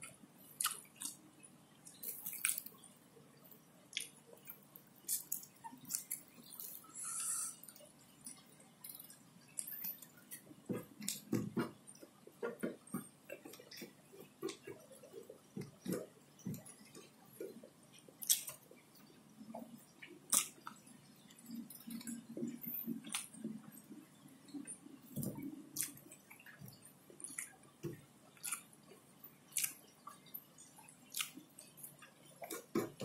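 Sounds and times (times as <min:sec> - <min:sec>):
mouth clicks and smacks: 0:00.0 - 0:01.2, 0:19.4 - 0:33.0
close-up chewing: 0:03.9 - 0:11.3, 0:19.6 - 0:33.0.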